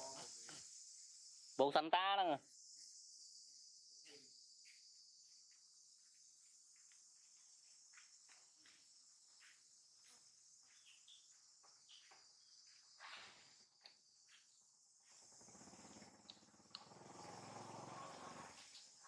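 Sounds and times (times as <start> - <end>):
faint insect chorus: 0.0 - 19.0
faint ticks: 15.8 - 17.4.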